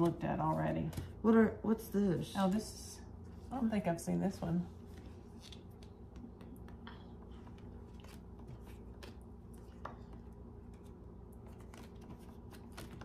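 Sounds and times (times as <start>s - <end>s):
steady low hum: 0.0s - 13.0s
playing cards clicking and tapping: 5.3s - 13.0s.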